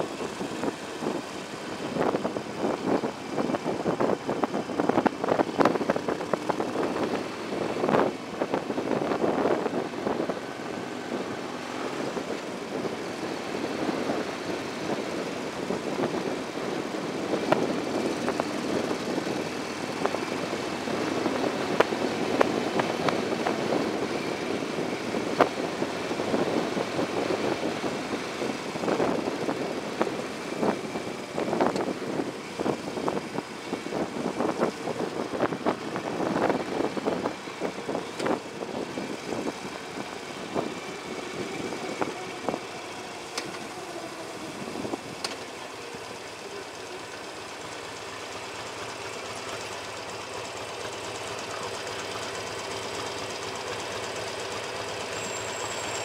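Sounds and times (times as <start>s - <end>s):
wind buffeting microphone: 0.0s - 42.9s
motorcycle engine: 0.0s - 56.0s.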